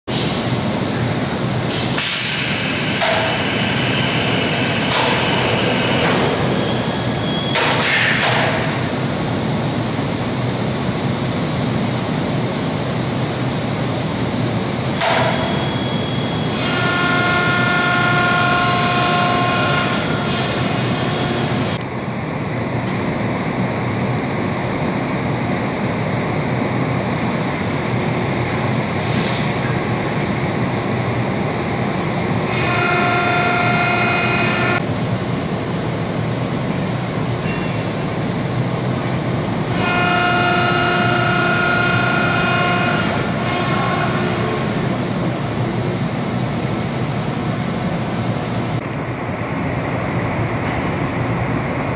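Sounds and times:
industrial machinery running: 0.1s - 51.9s
multi-tone whine: 2.5s - 10.3s, 13.3s - 23.5s, 32.4s - 51.9s.

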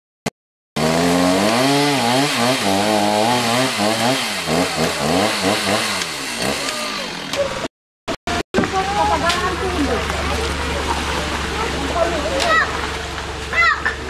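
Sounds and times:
two-stroke engine cutting vegetation: 0.8s - 7.7s, 8.3s - 14.0s.

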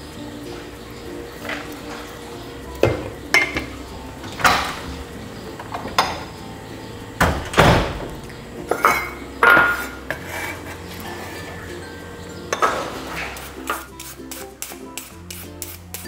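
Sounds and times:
utensils knocking on cookware: 2.8s - 3.8s, 5.6s - 6.4s, 8.7s - 11.4s, 12.4s - 15.8s.

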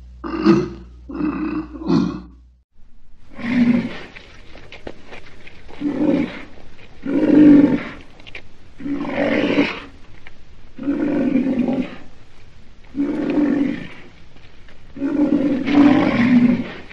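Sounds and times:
rhinoceros bellowing calls: 8.8s - 10.0s, 10.6s - 16.9s.

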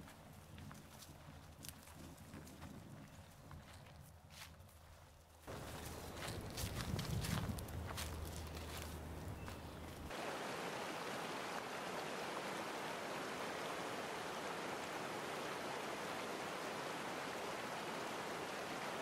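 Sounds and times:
stream rushing over stones: 10.1s - 19.0s.

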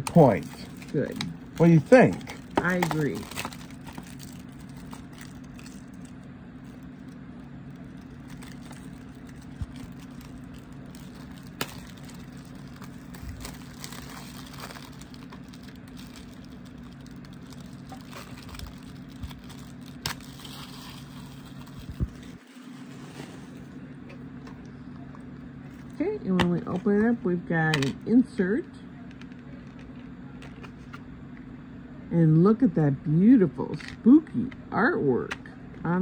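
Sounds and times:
plastic wrap crinkling: 0.0s - 23.8s
steady low hum: 0.0s - 36.0s.

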